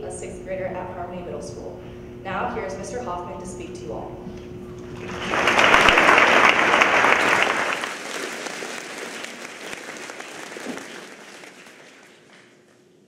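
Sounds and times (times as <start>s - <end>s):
audience applauding: 4.9s - 12.8s.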